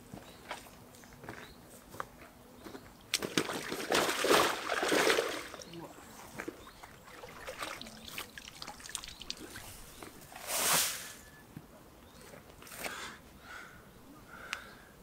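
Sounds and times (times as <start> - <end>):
water trickling and dripping: 5.5 - 9.9.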